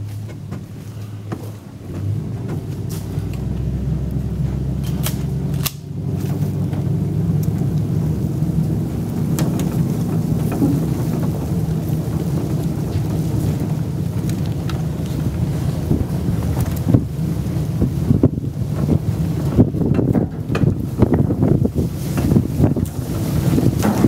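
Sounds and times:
vehicle rumbling on dirt road: 0.0 - 24.0
sharp clicks: 4.8 - 5.9.

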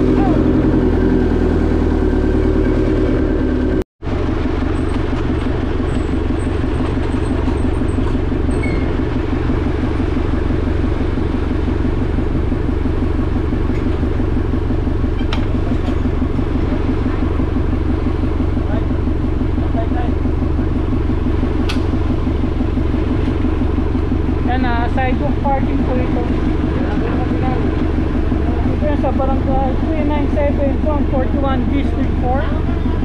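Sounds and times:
vehicle engine running: 0.0 - 33.0.

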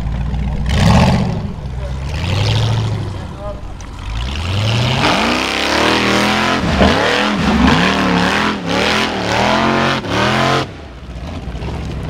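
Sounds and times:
buggy engine revving hard: 0.0 - 11.8.

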